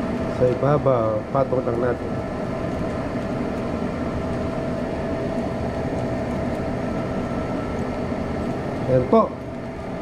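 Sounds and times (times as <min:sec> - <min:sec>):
faint constant whine: 0:00.0 - 0:10.0
low hum of fan: 0:00.0 - 0:10.0.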